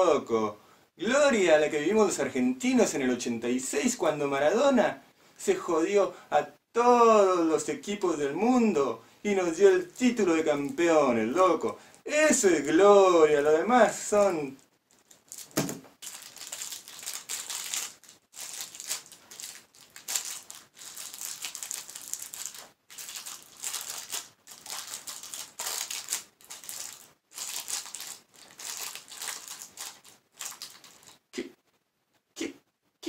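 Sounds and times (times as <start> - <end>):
plastic wrapper crinkling: 14.2 - 31.2.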